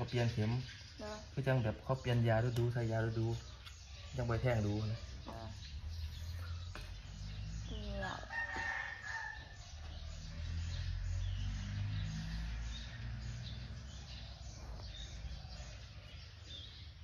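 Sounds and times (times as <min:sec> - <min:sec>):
rooster crowing: 0:08.0 - 0:10.7.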